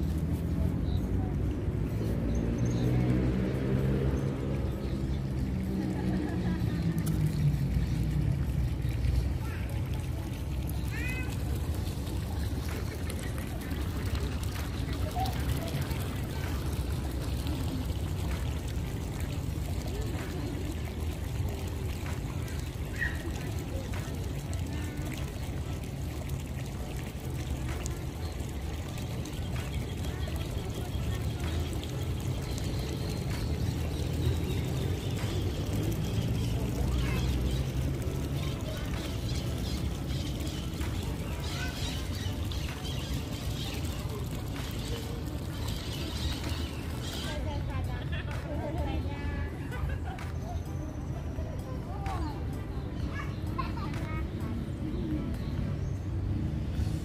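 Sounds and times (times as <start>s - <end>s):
faint distant voices: 0.0s - 57.0s.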